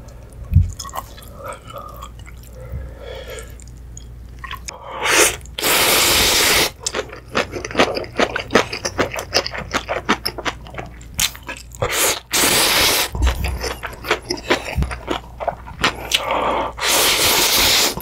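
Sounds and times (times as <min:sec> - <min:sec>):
person slurping noodles: 0:16.1 - 0:18.0.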